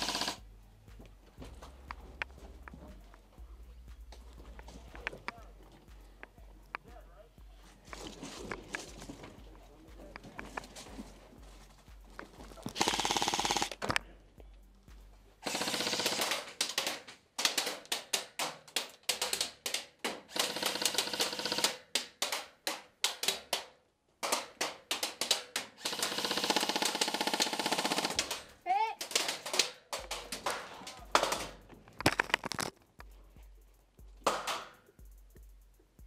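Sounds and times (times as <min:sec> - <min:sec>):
electric guns firing bursts: 0:00.0 - 0:00.4, 0:12.6 - 0:13.8, 0:15.4 - 0:23.6, 0:24.2 - 0:31.6.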